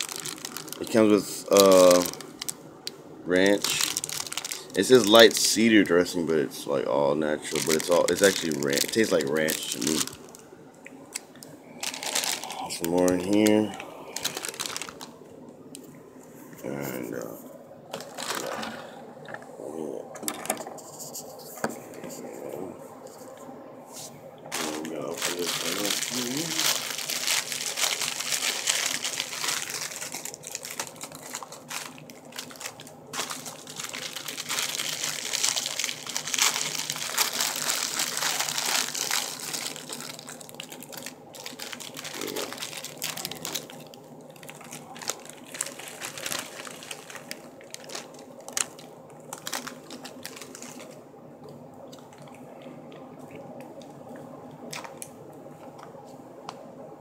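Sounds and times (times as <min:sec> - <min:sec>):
plastic food wrapping crinkling: 0:00.0 - 0:06.1, 0:07.4 - 0:15.2, 0:17.9 - 0:19.0, 0:24.5 - 0:51.0, 0:54.6 - 0:55.8.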